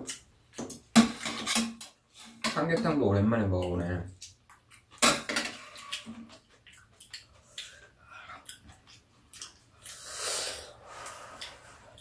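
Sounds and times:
chewing and mouth noises: 5.6s - 10.3s.

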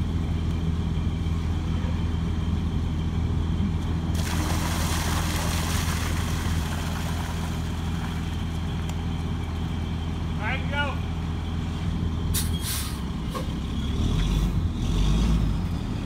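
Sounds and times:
fire engine idling: 0.0s - 4.5s, 6.1s - 12.8s
water rushing from hydrant: 4.1s - 8.6s.

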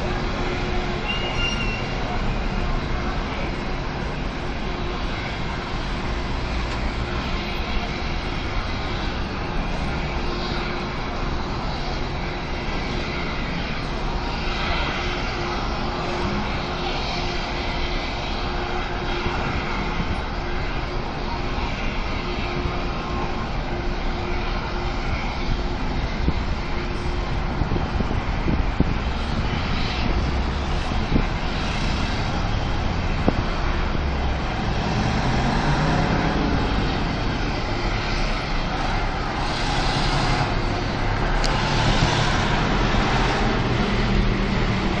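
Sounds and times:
gas fire rushing: 0.0s - 45.0s.

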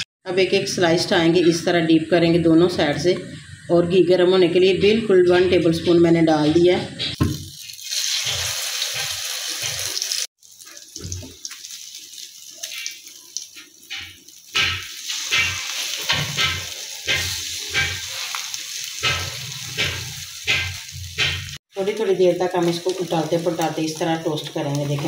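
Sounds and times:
bread sizzling in a frying pan: 7.4s - 25.0s.

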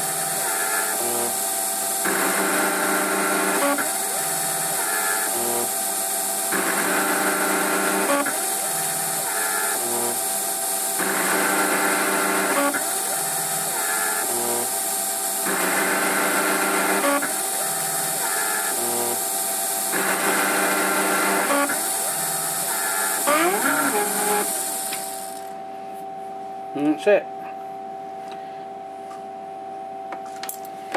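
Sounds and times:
lathe spindle running: 0.0s - 25.6s
stepper motors whining: 2.0s - 25.6s.

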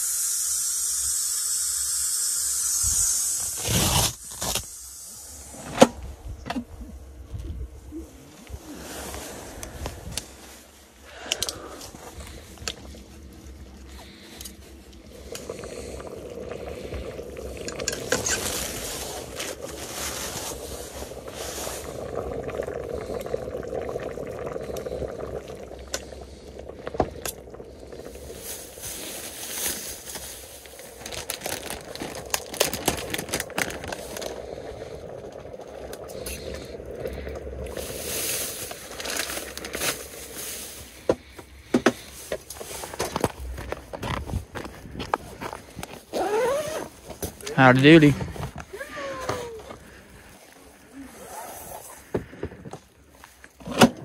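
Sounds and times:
stew bubbling: 6.9s - 53.7s
utensils scraping metal pot: 17.6s - 19.4s
packaging crinkling: 28.1s - 35.6s, 37.7s - 41.0s.

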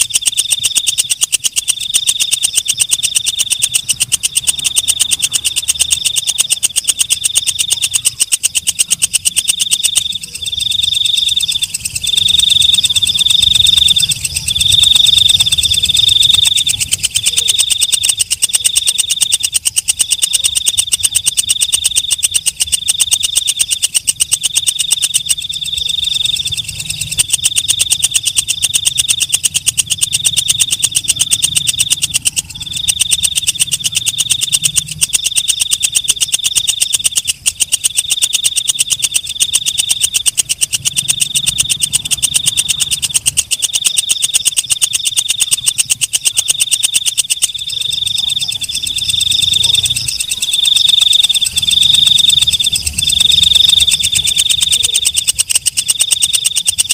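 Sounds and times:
katydid buzzing trill: 0.0s - 56.9s.

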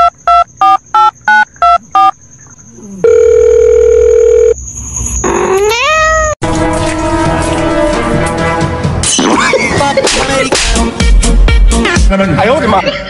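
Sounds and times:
long steady beep: 0.0s - 2.2s, 3.0s - 4.6s
short electronic beeps: 0.0s - 2.2s
cat meowing: 5.5s - 6.4s
music: 6.4s - 13.0s.

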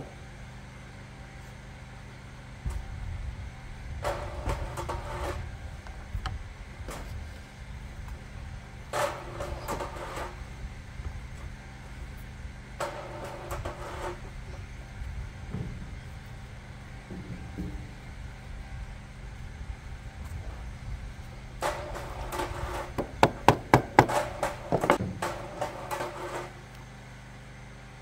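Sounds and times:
electric grinder grinding blade: 8.9s - 10.6s, 11.4s - 14.9s.

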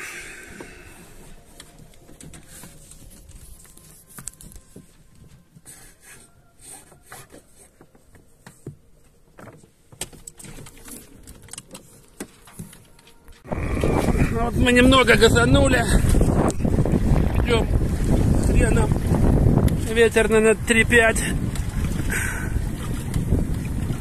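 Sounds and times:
water moving along hull: 0.0s - 24.0s
clicks and knocks from rigging: 1.5s - 5.6s, 6.8s - 13.4s
wind buffeting microphone: 13.4s - 24.0s.

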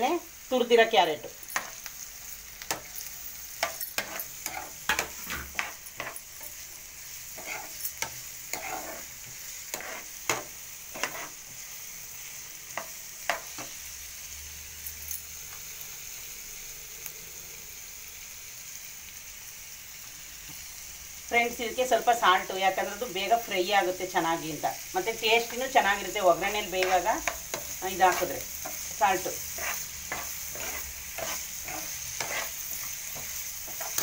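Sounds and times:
vegetables sizzling in oil: 0.0s - 34.0s
steel spoon scraping pan: 2.7s - 11.5s, 26.4s - 34.0s.

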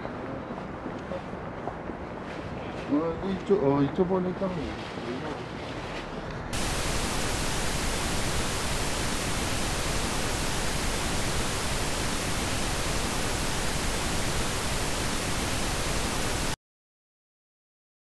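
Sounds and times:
static-like hiss: 6.6s - 16.6s.

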